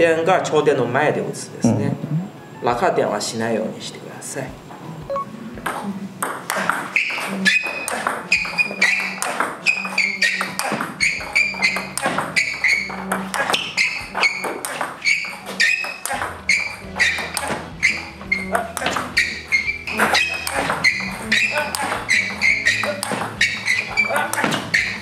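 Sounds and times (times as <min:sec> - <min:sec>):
table tennis ball clicking: 0:05.6 - 0:17.6, 0:18.5 - 0:19.1, 0:20.0 - 0:25.0
shoes squeaking on floor: 0:05.8 - 0:25.0.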